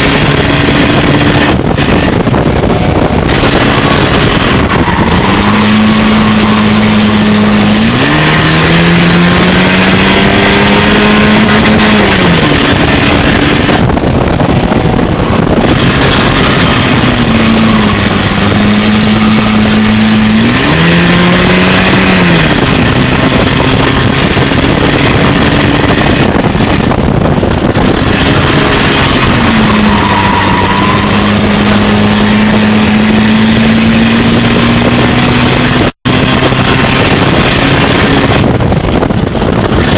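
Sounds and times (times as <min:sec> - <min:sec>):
race car engine running hard: 0:00.0 - 0:39.9
road and wind noise: 0:00.0 - 0:39.9.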